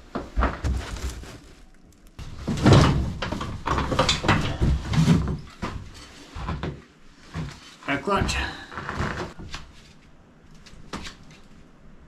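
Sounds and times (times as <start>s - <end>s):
cardboard scraping and rustling: 0.1s - 6.1s.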